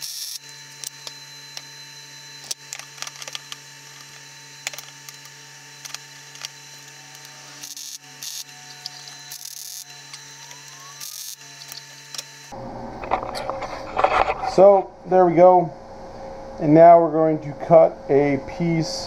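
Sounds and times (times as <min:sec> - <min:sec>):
welder crackling hiss: 0:00.0 - 0:00.4, 0:07.2 - 0:09.9, 0:10.9 - 0:12.2
steady hum: 0:00.0 - 0:19.0.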